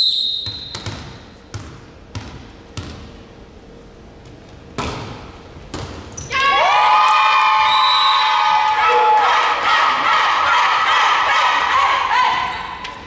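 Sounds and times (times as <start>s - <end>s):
volleyball bouncing on hall floor: 0.2s - 3.2s, 4.7s - 6.5s
ball hits: 4.8s - 6.1s
girls shouting and cheering: 6.3s - 12.9s.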